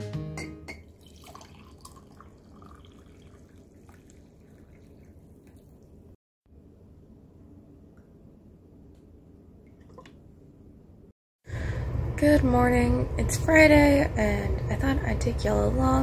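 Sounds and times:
coffee pouring into a glass mug: 0:00.8 - 0:06.0
liquid gurgling: 0:00.8 - 0:06.2.

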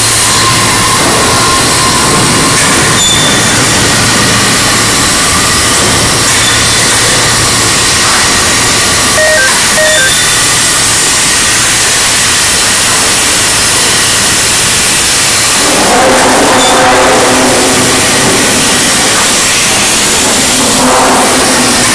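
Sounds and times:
overhead crane rumble and hiss: 0:00.0 - 0:21.9
short beeps: 0:09.1 - 0:10.7.

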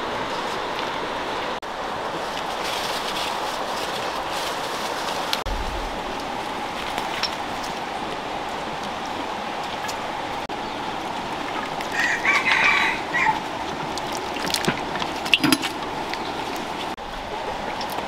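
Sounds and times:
rooster crowing: 0:11.9 - 0:13.4.

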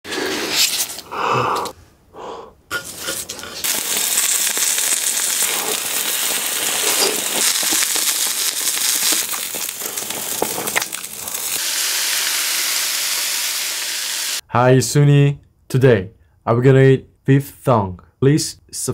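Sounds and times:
meat sizzling on a grill: 0:02.9 - 0:14.4.

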